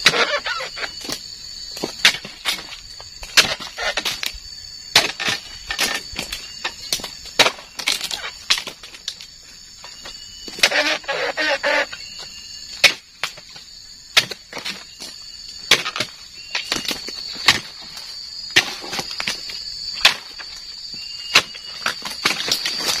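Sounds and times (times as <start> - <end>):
high insect drone: 0.0 - 23.0
chisel chopping into palm fronds: 4.9 - 6.0, 15.7 - 17.8.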